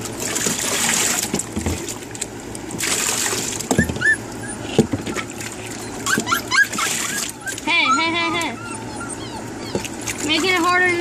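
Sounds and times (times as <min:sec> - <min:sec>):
water sloshing and splashing: 0:00.0 - 0:11.0
puppy whimpering: 0:03.7 - 0:11.0.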